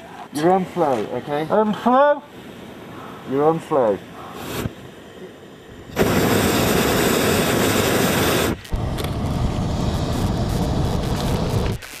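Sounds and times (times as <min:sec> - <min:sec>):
propane burner roaring: 0:04.3 - 0:11.8.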